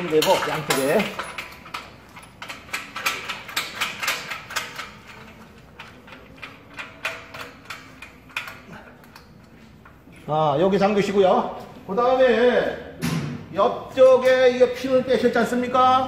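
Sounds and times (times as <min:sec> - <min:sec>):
metal clicks and clanks: 0:00.0 - 0:10.3.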